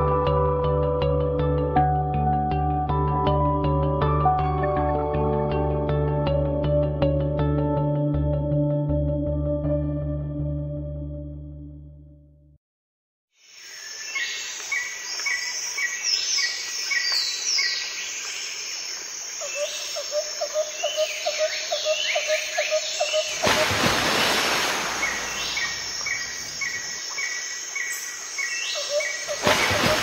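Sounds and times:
insect noise: 13.4 - 30.0
rushing hiss: 23.4 - 26.6
birds chirping and calling: 25.0 - 30.0.

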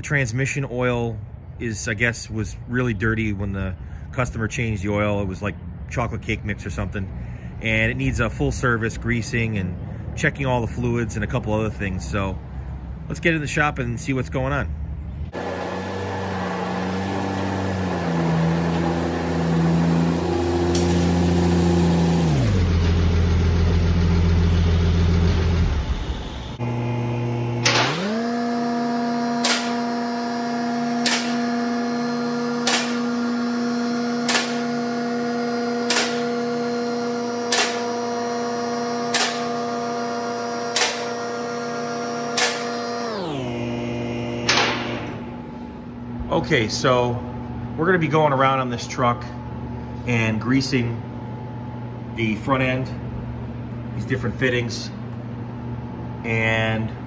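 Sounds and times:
truck engine running: 15.3 - 46.6
electric lift motor humming: 15.3 - 47.8.

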